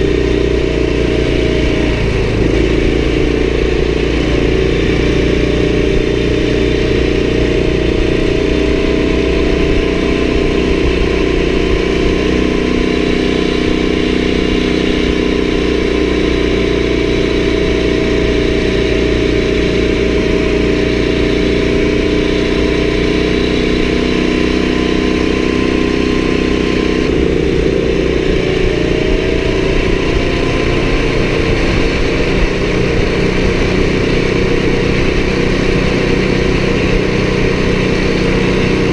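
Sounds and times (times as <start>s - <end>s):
atv engine running: 0.0s - 38.9s.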